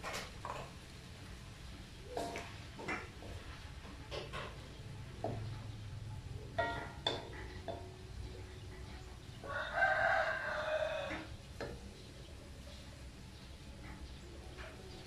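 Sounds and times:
wooden spatula knocking on wok: 2.2 - 5.6, 6.5 - 8.5
rooster crowing: 9.4 - 11.3.

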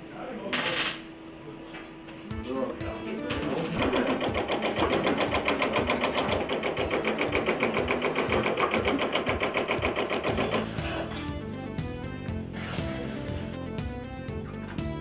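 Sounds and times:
metal forming machine striking: 3.3 - 11.3.

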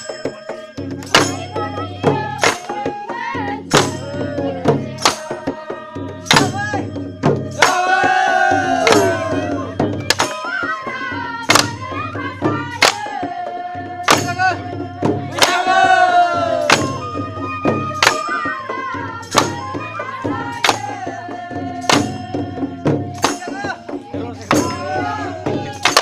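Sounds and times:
sharp drum beats: 0.0 - 26.0
bamboo flute melody: 0.1 - 12.7, 15.3 - 26.0.

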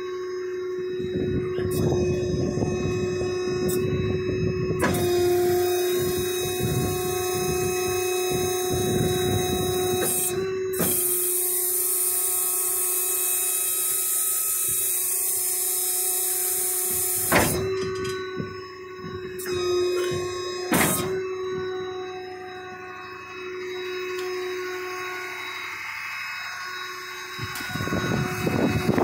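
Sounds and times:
hydraulic whine with hiss: 0.0 - 29.0
sharp metal clunk: 17.2 - 18.2, 20.0 - 21.2.

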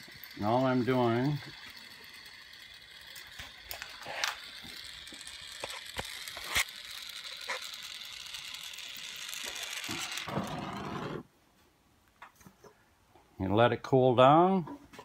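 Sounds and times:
gas torch flame hissing: 9.5 - 11.3.

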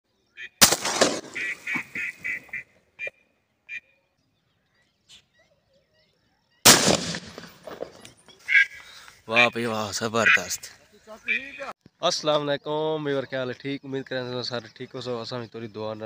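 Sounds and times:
shotgun shot: 0.6 - 2.0, 6.6 - 8.0
duck quacking: 1.4 - 3.9, 8.5 - 8.8, 10.2 - 10.6, 11.2 - 11.7.

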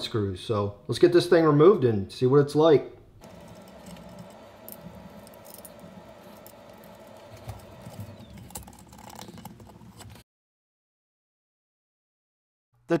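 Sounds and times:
steady low background hum: 3.1 - 10.2
clicks taps and scrapes of screws: 3.2 - 10.2.

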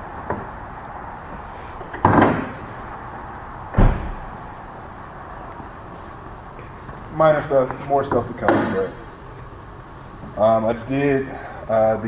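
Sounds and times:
car door thunks: 1.9 - 2.8, 3.7 - 4.4.

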